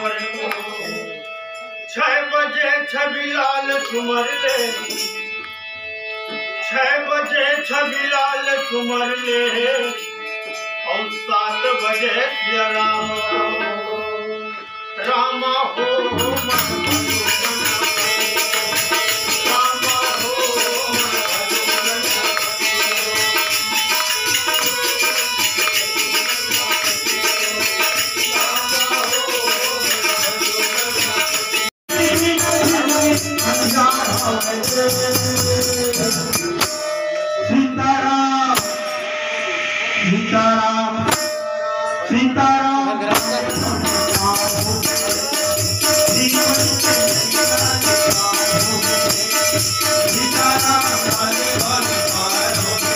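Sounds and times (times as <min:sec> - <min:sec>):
jingling hand percussion: 0:00.0 - 0:02.0, 0:03.0 - 0:06.5, 0:07.1 - 0:14.1, 0:16.1 - 0:37.5, 0:38.5 - 0:39.5, 0:41.0 - 0:42.1, 0:43.0 - 0:52.9
harmonium melody: 0:00.0 - 0:38.2, 0:42.6 - 0:52.9
hand drum: 0:43.1 - 0:52.9.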